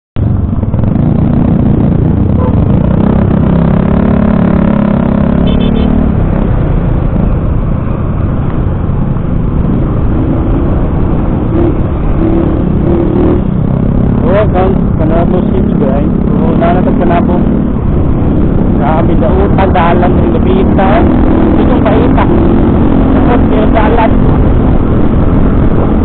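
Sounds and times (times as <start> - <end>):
motorcycle engine droning: 0.2 - 26.0
wind rushing on microphone: 5.9 - 26.0.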